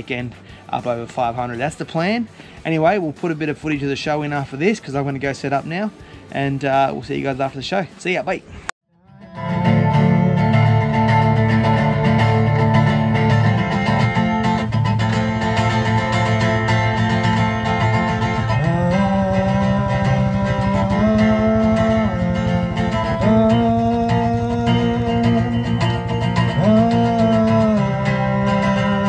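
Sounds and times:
guitar strumming: 0.0s - 7.7s, 9.0s - 29.0s
sliding melody line: 9.1s - 29.0s.

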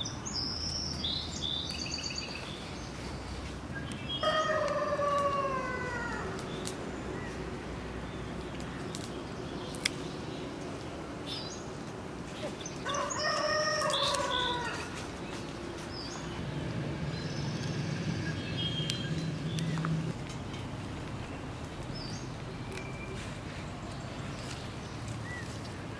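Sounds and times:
rooster crowing: 4.2s - 6.4s, 12.8s - 15.0s.

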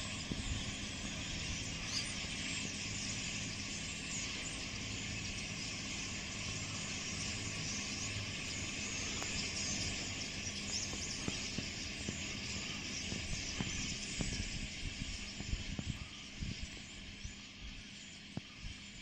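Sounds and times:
flock of birds calling: 0.0s - 19.0s
wind thumps on microphone: 10.9s - 16.7s.

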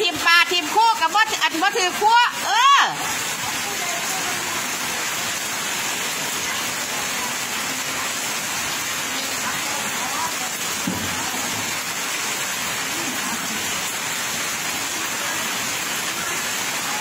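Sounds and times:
heavy rain on wet concrete: 0.0s - 17.0s.

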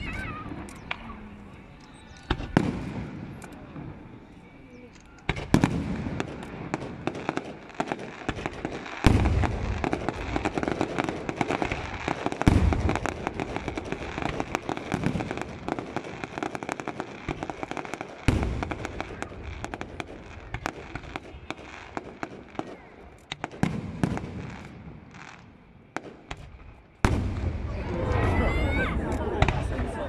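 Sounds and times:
fireworks popping and crackling: 1.9s - 4.2s, 4.8s - 28.4s
firework shells booming: 5.3s - 27.8s.

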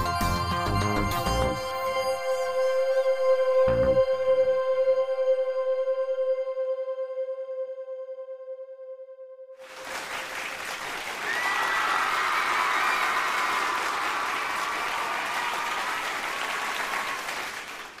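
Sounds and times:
audience applause: 9.6s - 18.0s.

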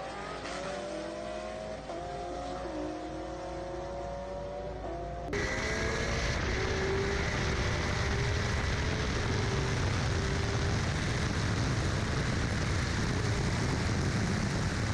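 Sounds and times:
faint car engine running: 3.9s - 14.9s
wind rushing over camera: 5.4s - 14.9s.

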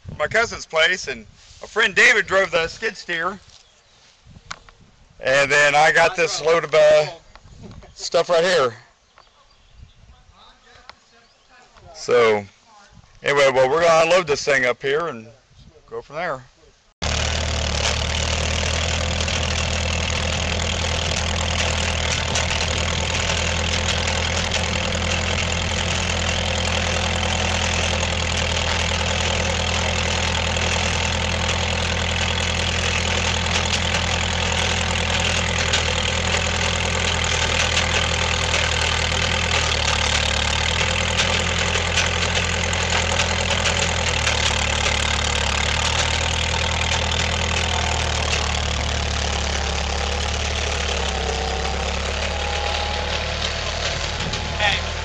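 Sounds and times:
skid steer engine running: 17.0s - 55.0s.

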